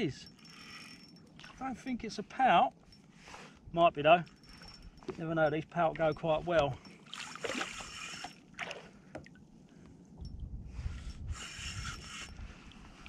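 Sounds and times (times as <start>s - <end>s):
water sloshing against kayak hull: 4.3s - 9.6s.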